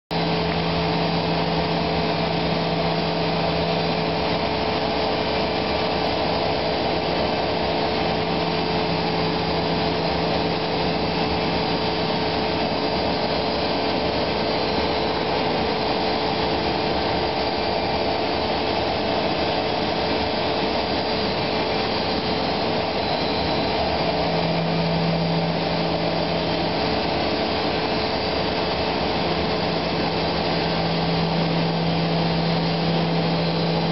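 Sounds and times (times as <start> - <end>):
constant rushing noise: 0.1 - 33.9
cnc router spindle whine: 0.2 - 33.9.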